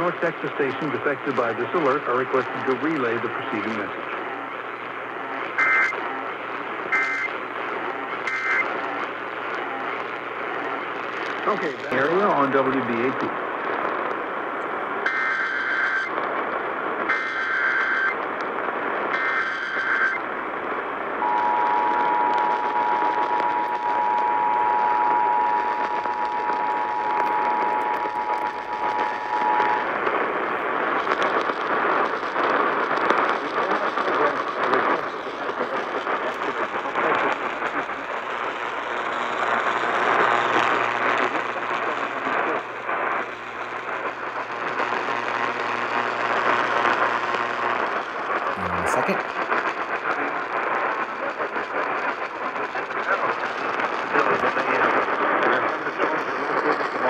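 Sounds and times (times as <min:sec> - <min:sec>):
radio static hiss with crackling: 0:00.0 - 0:57.0
two-tone data warble: 0:05.4 - 0:06.0, 0:06.9 - 0:07.4, 0:08.1 - 0:08.8, 0:17.1 - 0:18.2, 0:19.2 - 0:20.2, 0:21.2 - 0:30.0.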